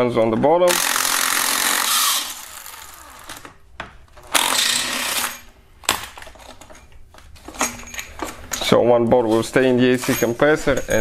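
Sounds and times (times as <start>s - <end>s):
cordless power tool spinning bolts: 0.7s - 3.5s, 4.3s - 5.4s.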